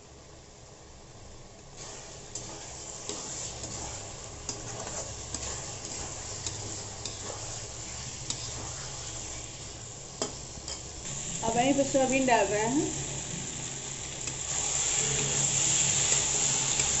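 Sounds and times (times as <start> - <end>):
potatoes sizzling in a pan: 1.3 - 17.0
metal spatula scraping a pan: 1.8 - 10.9.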